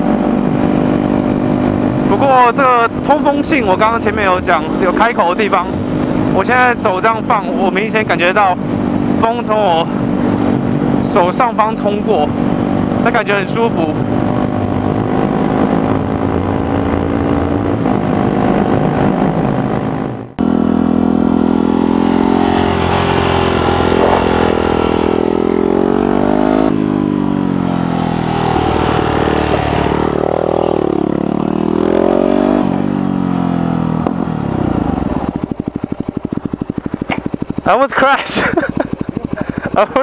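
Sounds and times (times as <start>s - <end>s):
wind noise: 0.0s - 20.4s, 21.5s - 33.2s
motorcycle engine revving: 0.0s - 40.0s.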